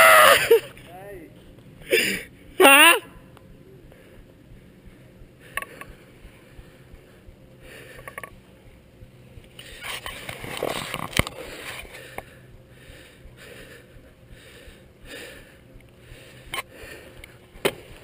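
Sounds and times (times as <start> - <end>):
handling rustling and scraping: 9.5 - 12.0.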